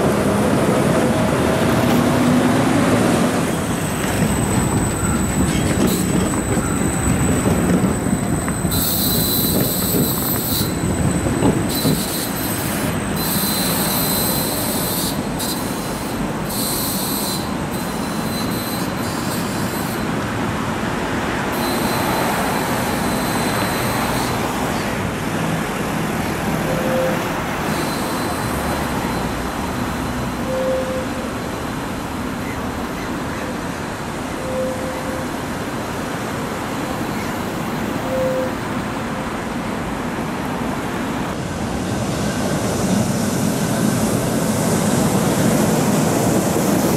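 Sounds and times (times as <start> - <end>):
tram wheels squealing: 0.0 - 20.3, 21.5 - 25.0, 26.2 - 39.6, 41.8 - 46.9
road traffic: 0.0 - 46.9
short low beep: 30.2 - 31.2.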